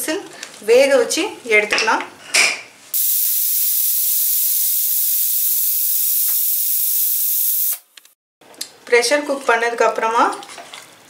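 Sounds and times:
pressure cooker steam hissing: 2.9 - 7.9.

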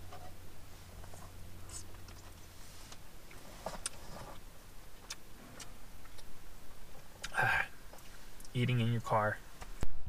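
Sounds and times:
person eating and chewing: 1.0 - 4.4, 5.0 - 8.5.

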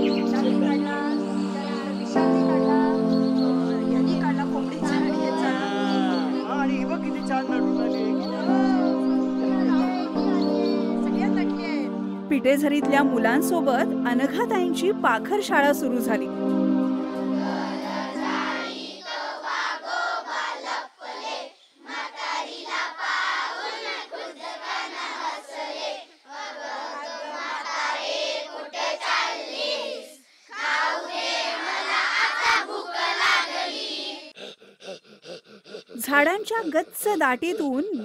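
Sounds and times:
children singing and chanting: 0.0 - 12.9, 15.6 - 38.0.

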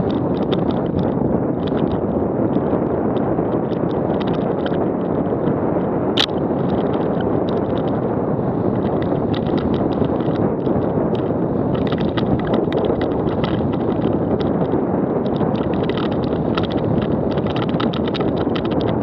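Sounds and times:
bike rattling: 0.0 - 19.0
wind rushing over camera: 0.0 - 19.0.

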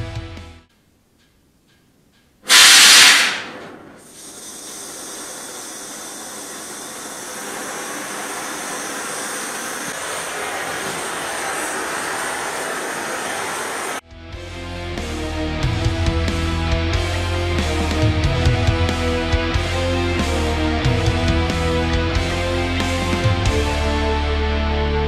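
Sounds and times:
gas rushing from torch: 2.5 - 14.0
torch flame hissing: 2.5 - 14.0.

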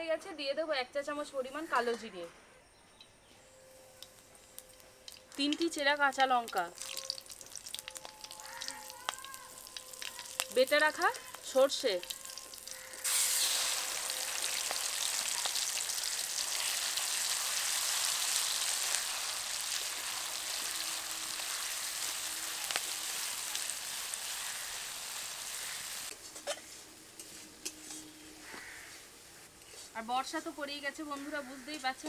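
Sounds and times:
paste sizzling in hot oil: 6.4 - 26.1.

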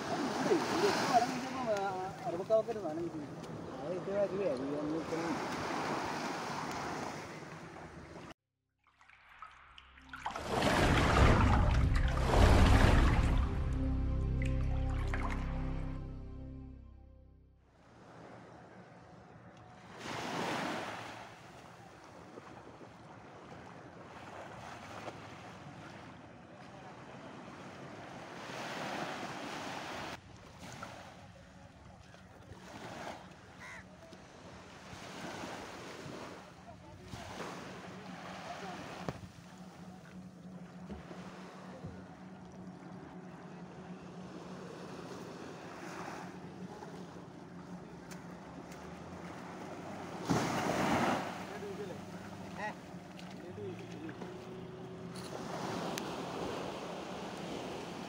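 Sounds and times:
gentle surf wash: 0.0 - 8.3, 9.0 - 16.2, 17.8 - 58.0
small waves lapping on shore: 0.0 - 8.3, 8.9 - 13.8, 17.8 - 58.0
distant boat engine hum: 10.0 - 58.0
wave breaking on sand: 10.4 - 13.7, 50.1 - 52.0.

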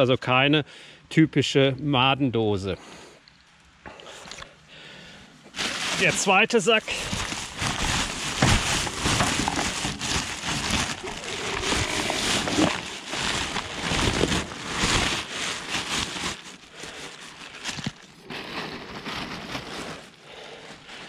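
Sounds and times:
plastic sack rustling: 5.5 - 21.0.

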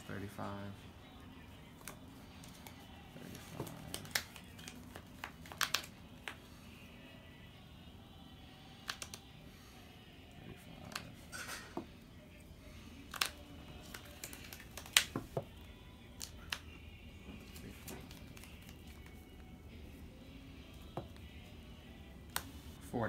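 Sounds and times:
trading cards clicking: 1.8 - 2.8, 3.4 - 6.4, 8.8 - 9.3, 10.8 - 11.2, 13.0 - 16.7, 17.4 - 19.4, 22.3 - 22.6.

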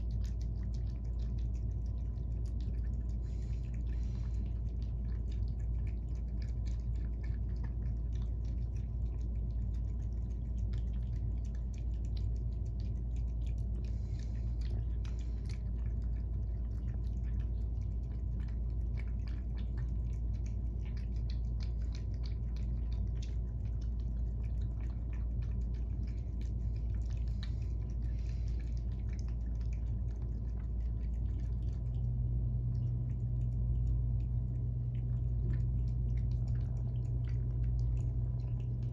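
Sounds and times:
cats chewing and licking: 0.0 - 38.9
steady low hum: 0.0 - 38.9.

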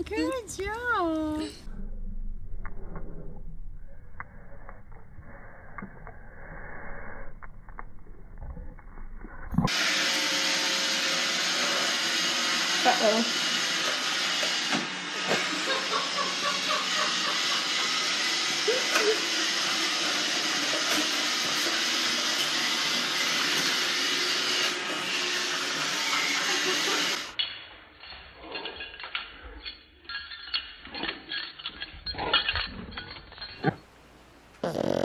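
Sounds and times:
robot vacuum whirring: 9.6 - 27.3
light clinks: 27.4 - 33.9.

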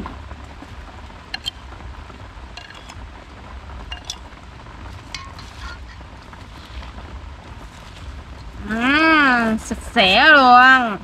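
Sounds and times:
steady low rumble: 0.0 - 11.0
spoon clinking on metal: 1.4 - 1.6, 2.6 - 3.0, 3.9 - 4.2, 5.1 - 5.9
vegetables tossed in metal basin: 2.5 - 3.0, 4.9 - 7.0.

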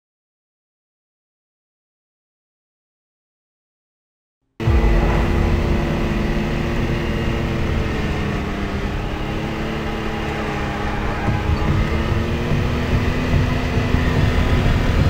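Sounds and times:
off-road vehicle engine rumbling: 4.6 - 15.0.

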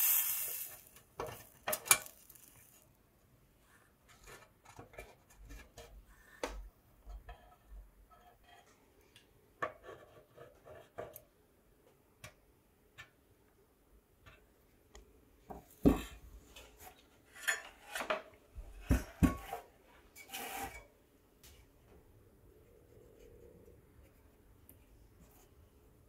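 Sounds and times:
metal scraping on metal: 19.4 - 20.9.

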